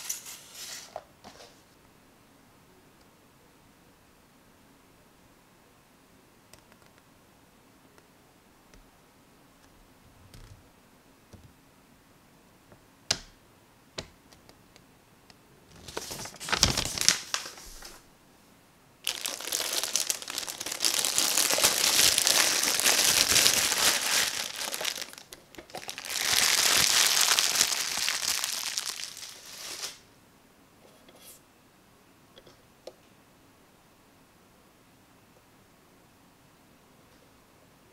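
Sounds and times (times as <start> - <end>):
plastic bag crinkling: 15.8 - 18.0, 19.0 - 30.0.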